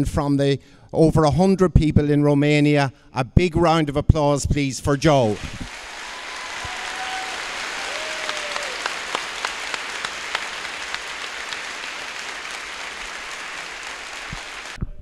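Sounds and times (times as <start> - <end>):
audience applauding: 5.3 - 14.8.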